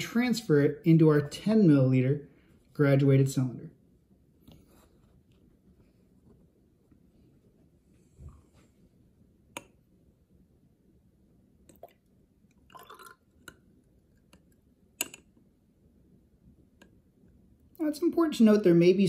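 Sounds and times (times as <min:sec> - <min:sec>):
water trickling: 0:11.7 - 0:13.6.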